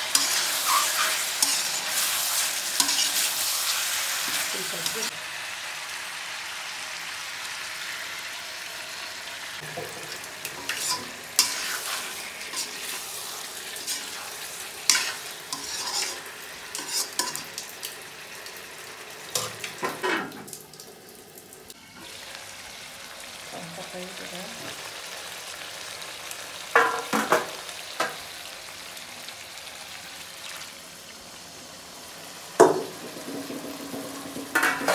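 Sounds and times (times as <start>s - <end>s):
curry sizzling in a pan: 0.0s - 34.9s
metal spatula scraping pan: 0.1s - 5.1s, 10.5s - 17.5s.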